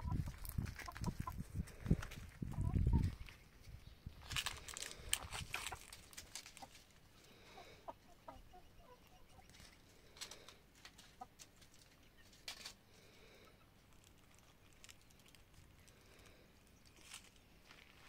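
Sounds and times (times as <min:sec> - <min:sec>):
chickens clucking softly: 0:00.0 - 0:03.6, 0:04.9 - 0:12.5.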